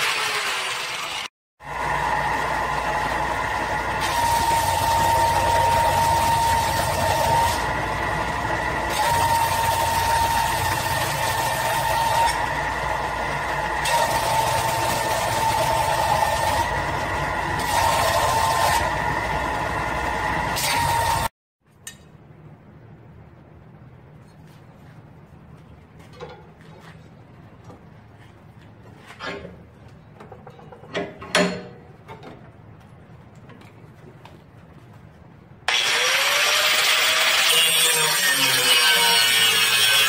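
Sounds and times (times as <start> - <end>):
belt sander whining: 0.0 - 21.3.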